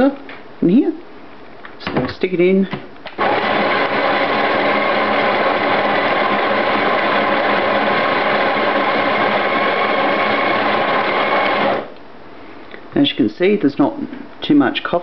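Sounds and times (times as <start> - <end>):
coffee grinder running: 3.2 - 11.9.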